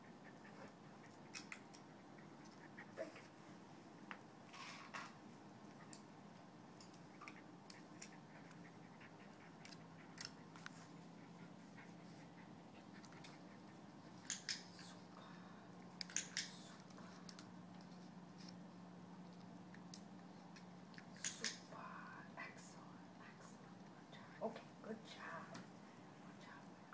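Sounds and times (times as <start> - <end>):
low steady hum: 0.0 - 26.9
small sharp clicks: 14.2 - 14.9, 16.0 - 16.7, 19.8 - 21.7.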